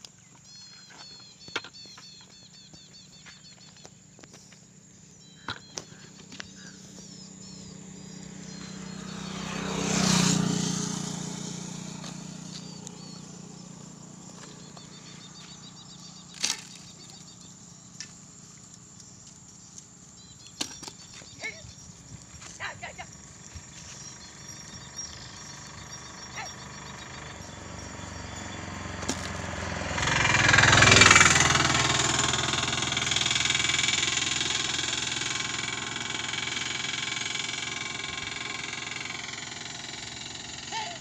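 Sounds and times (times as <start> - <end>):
faint bird chirps: 0.1 - 10.6, 12.2 - 28.8
vehicle passing: 6.5 - 18.9, 21.2 - 41.0.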